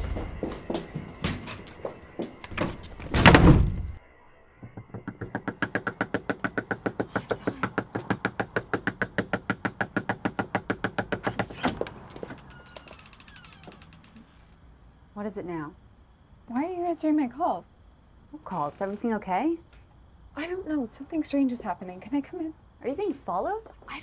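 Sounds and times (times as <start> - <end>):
loud thud: 3.1 - 4.0
rapid knocking on a door: 4.6 - 11.6.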